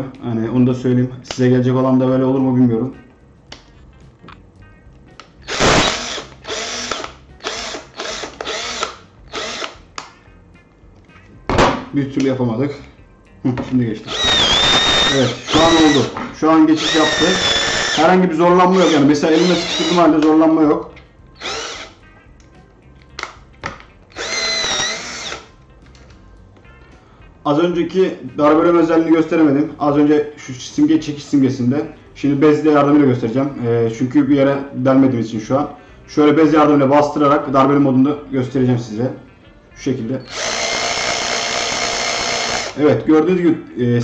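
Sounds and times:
cordless drill motor spinning: 5.4s - 9.8s, 14.0s - 16.2s, 16.8s - 20.2s, 21.4s - 22.0s, 24.1s - 25.5s, 40.2s - 42.8s.

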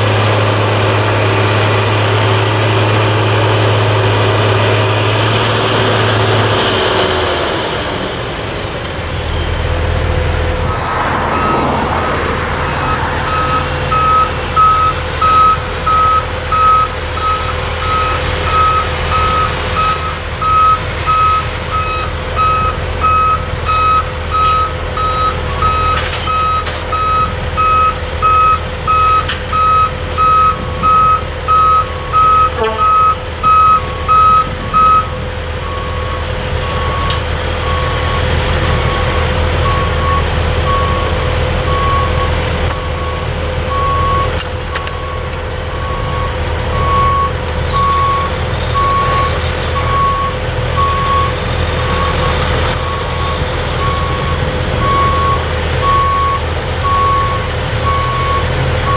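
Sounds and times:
diesel truck engine running: 0.0s - 58.9s
backup alarm beeping: 10.6s - 41.1s, 45.0s - 58.9s.

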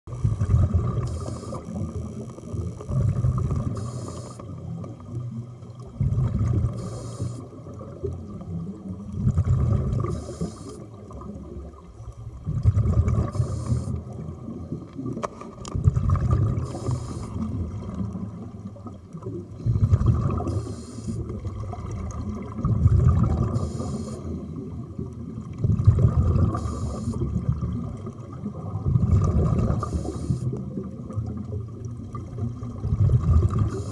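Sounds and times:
exhaled bubbles rumbling: 0.1s - 33.9s
regulator inhalation hiss: 1.0s - 1.8s, 3.8s - 4.5s, 6.8s - 7.5s, 10.1s - 10.9s, 13.3s - 14.0s, 16.6s - 17.5s, 20.5s - 21.3s, 23.5s - 24.4s, 26.6s - 27.2s, 29.8s - 30.6s.

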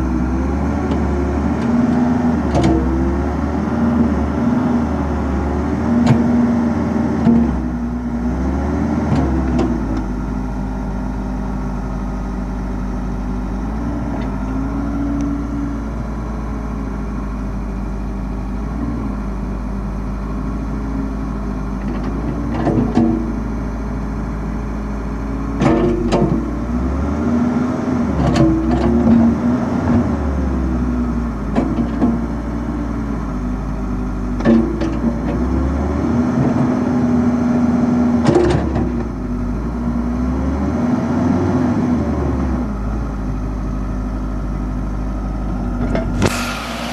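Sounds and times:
diesel engine running: 0.0s - 46.9s
hydraulics working: 45.8s - 46.9s.

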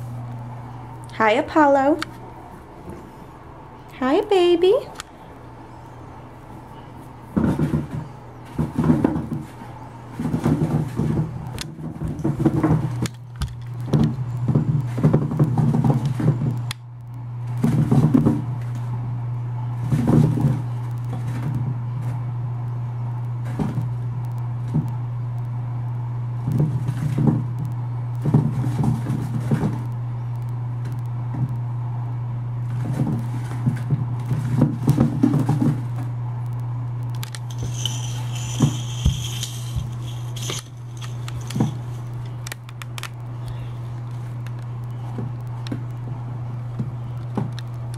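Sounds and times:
steady low hum: 0.0s - 47.9s
plastic shifting on tile floor: 37.3s - 42.4s
scrabbling and rustling against plastic: 37.3s - 42.9s.

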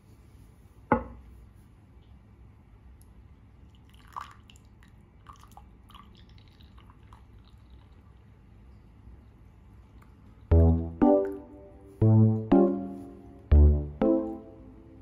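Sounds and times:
small drips and splashes: 2.9s - 10.5s
tea trickling into a mug: 3.6s - 8.5s.

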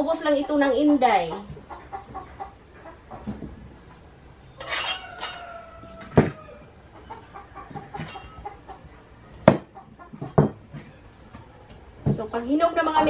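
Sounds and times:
chicken clucking: 0.0s - 12.0s
rooster crowing: 4.6s - 6.8s.

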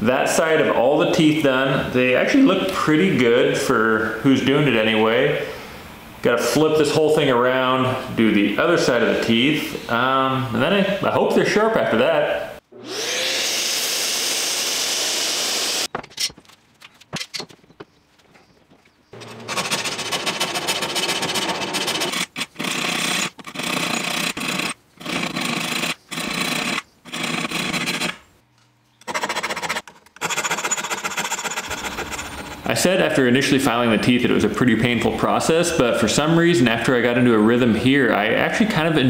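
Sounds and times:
file rasping on saw teeth: 30.6s - 32.7s.

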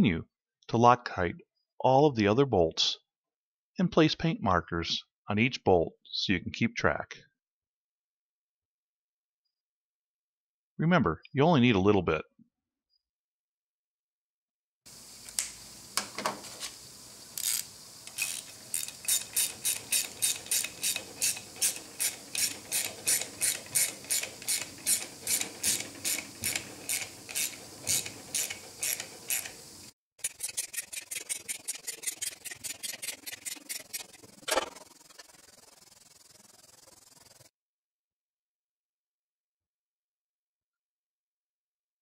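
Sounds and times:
hand ratchet clicking: 17.4s - 29.6s, 30.2s - 37.4s.

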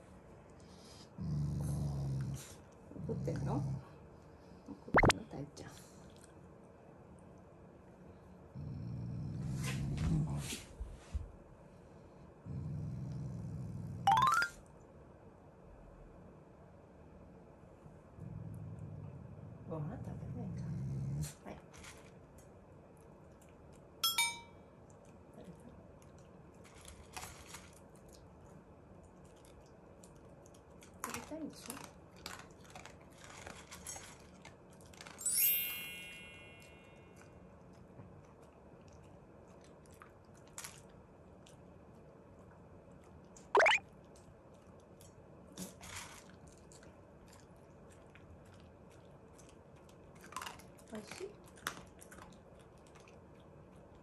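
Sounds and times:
dog food dish clinking: 24.0s - 24.5s
dog chewing food: 26.0s - 35.2s, 44.0s - 54.0s.

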